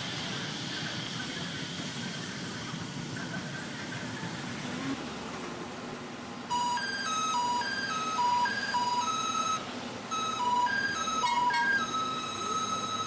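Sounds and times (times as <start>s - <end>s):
low rail and street noise: 0.0s - 13.0s
train musical horn melody: 10.6s - 11.9s.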